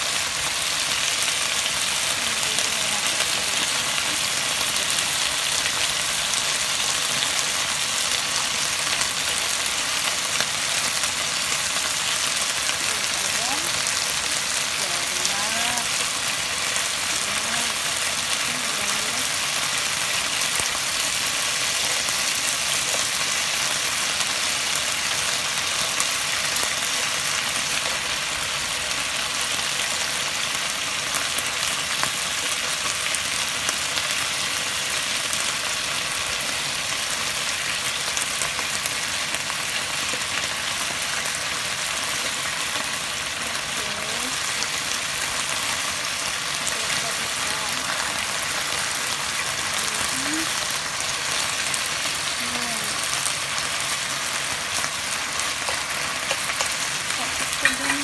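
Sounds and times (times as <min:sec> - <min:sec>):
meat sizzling in oil: 0:00.0 - 0:58.0
tongs clicking: 0:55.6 - 0:58.0.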